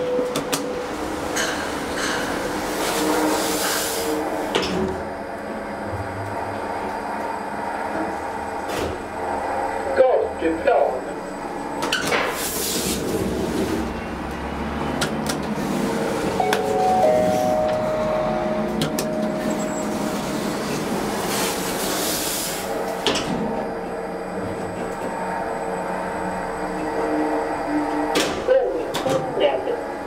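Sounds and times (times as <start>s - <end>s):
elevator doors sliding with a hiss: 2.5s - 4.6s, 12.1s - 14.0s, 15.5s - 23.5s
short held tone: 16.4s - 20.8s.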